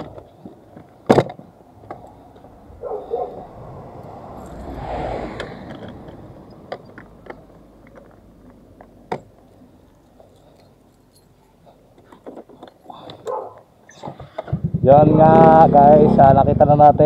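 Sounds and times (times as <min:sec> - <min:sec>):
brief rush of noise: 0:03.1 - 0:06.4.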